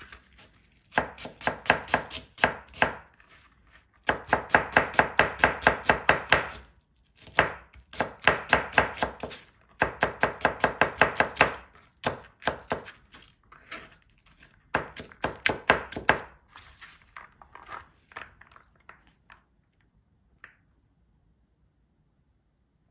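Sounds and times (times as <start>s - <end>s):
knife chopping on plastic board: 0.4s - 3.4s, 4.0s - 16.4s.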